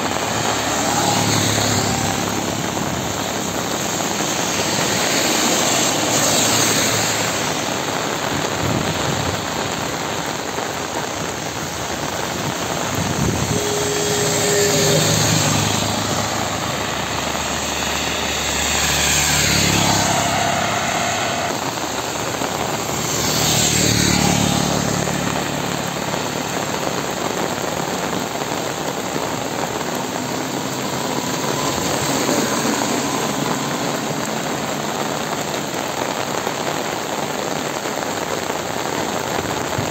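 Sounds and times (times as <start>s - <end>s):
heavy rain: 0.0s - 39.9s
vehicles passing on wet road: 0.0s - 39.9s.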